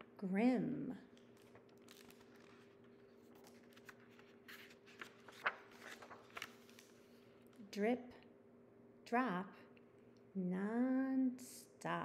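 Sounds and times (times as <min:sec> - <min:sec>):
faint steady hum: 0:00.0 - 0:12.0
paper crackles: 0:01.1 - 0:07.4
paper pages rustling: 0:01.1 - 0:07.6.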